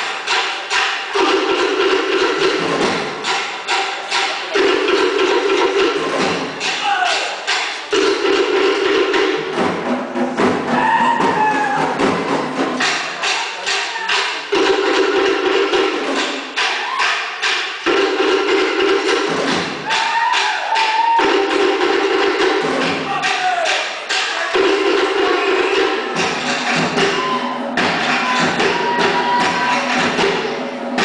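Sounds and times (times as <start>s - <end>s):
drum ensemble fast rhythm: 0.0s - 31.0s
shouted voice calls: 6.8s - 7.5s, 23.0s - 24.6s.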